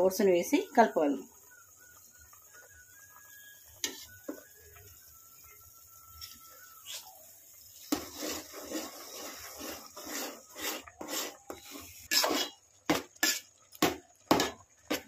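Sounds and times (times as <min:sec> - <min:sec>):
metal spatula scraping a pot: 0:03.8 - 0:04.2, 0:07.7 - 0:13.7.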